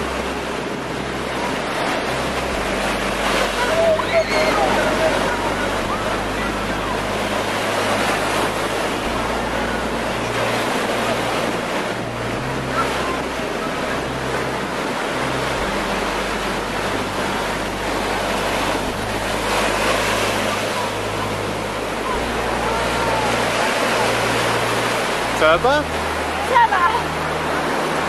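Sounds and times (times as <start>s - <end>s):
moving water: 0.0s - 28.0s.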